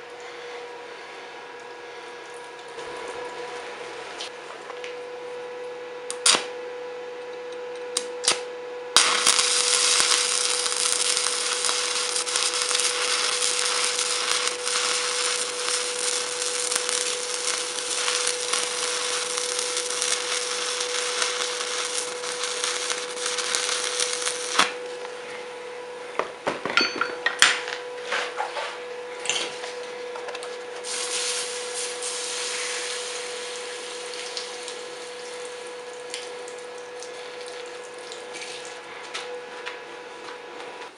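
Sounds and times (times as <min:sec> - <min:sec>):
steady hum: 0:00.0 - 0:40.6
welding arc crackling and hissing: 0:08.0 - 0:25.1, 0:30.8 - 0:38.2.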